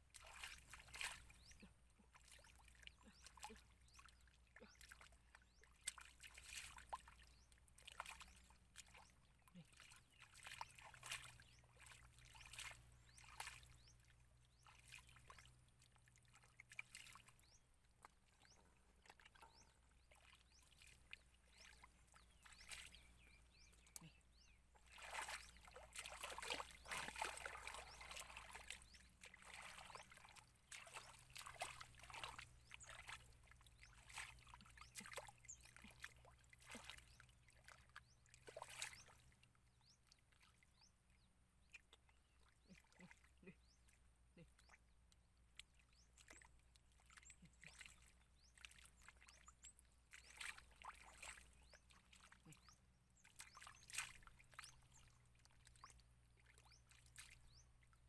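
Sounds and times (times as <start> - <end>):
hands splashing in muddy water: 0.1 - 13.8, 19.0 - 39.4, 45.5 - 55.9.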